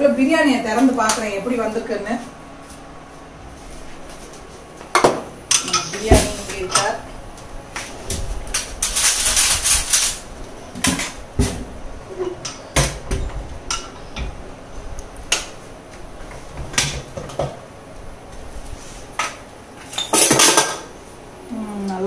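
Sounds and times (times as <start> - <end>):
metal utensils clinking: 5.5 - 7.0.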